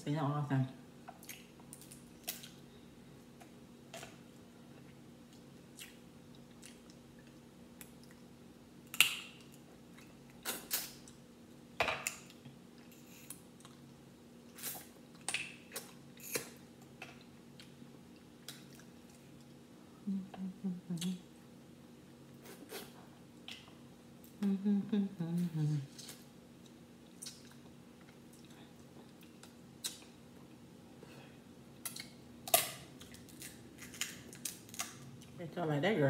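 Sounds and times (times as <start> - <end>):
faint steady hum: 0.0 - 36.0
sucking and smacking eating: 1.1 - 2.6, 14.5 - 19.6, 25.9 - 30.2.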